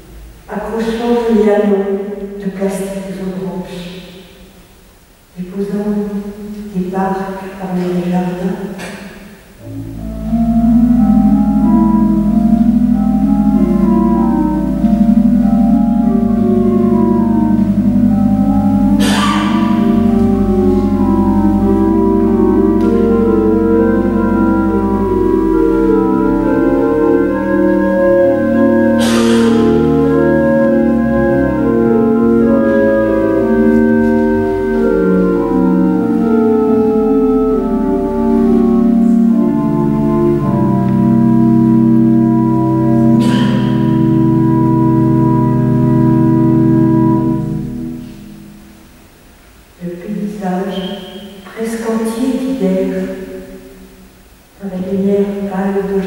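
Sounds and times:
pipe organ improvisation: 8.6 - 49.7.

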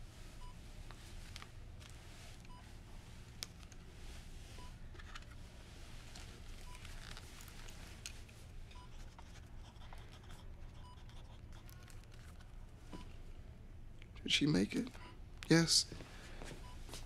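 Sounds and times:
low room hum: 0.0 - 17.0
patient monitor beeping: 4.6 - 4.8, 6.6 - 7.0, 8.7 - 9.1, 10.7 - 11.2, 12.9 - 13.2, 14.6 - 15.4.

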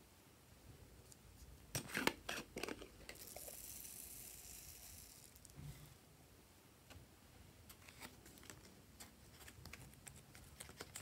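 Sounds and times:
foam beads pouring hiss: 3.2 - 5.6.

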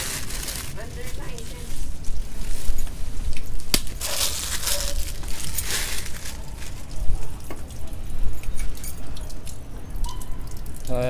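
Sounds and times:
cloth rag rustling: 4.0 - 6.8.

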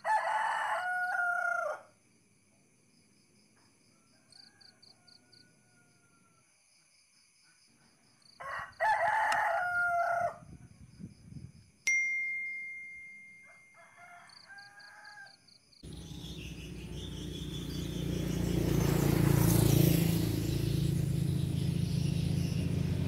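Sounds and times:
rooster crowing: 0.0 - 2.0, 3.9 - 6.6, 8.4 - 10.5, 13.4 - 15.6
click with ringing ding: 11.9 - 13.8
low outdoor rumble: 15.8 - 23.0.

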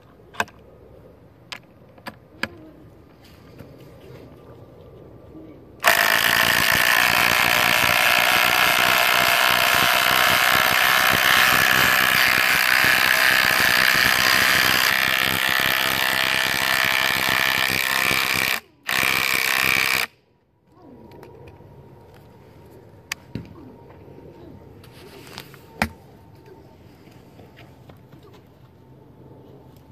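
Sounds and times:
impact driver rattling: 5.8 - 20.1.

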